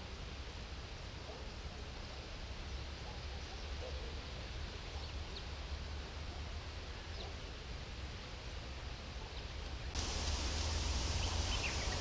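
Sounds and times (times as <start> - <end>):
light hiss: 0.0 - 12.0
faint bird chirps: 9.3 - 12.0.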